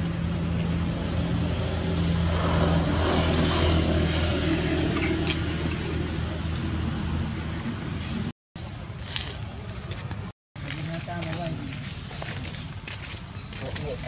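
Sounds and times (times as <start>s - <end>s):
vehicle engine humming: 0.0s - 8.3s.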